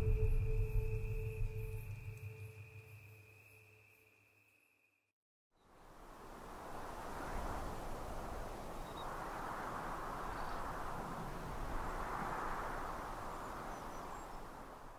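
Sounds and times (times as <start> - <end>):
low rumble: 0.0 - 3.0
wind rustling foliage: 5.6 - 14.9.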